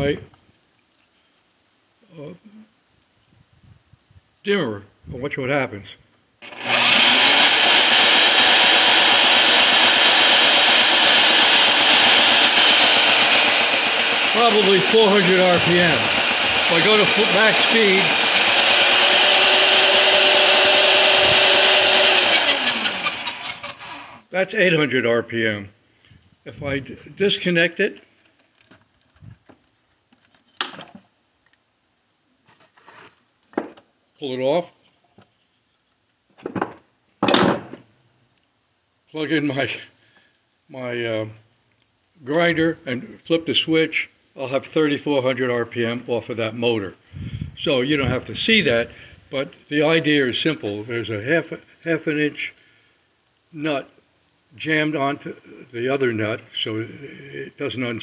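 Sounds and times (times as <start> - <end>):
electric drill running slowly: 6.4 - 24.2
knocks and clunks on workbench: 33.5 - 33.8, 36.4 - 37.8.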